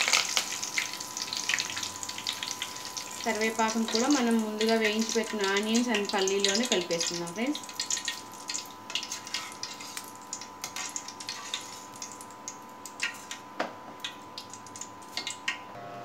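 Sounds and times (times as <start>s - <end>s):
leaves crackling in hot oil: 0.0s - 15.7s.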